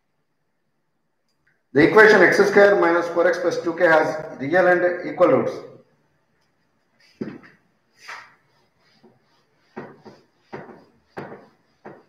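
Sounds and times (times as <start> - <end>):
duster wiping a whiteboard: 6.6 - 12.0.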